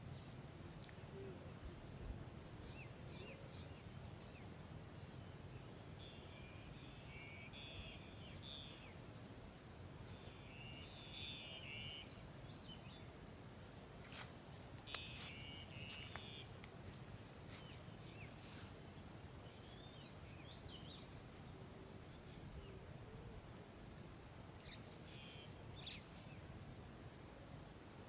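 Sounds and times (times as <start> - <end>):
grass cropping snaps: 0.8 - 1.0, 13.9 - 18.8
small birds chirping: 2.6 - 22.8.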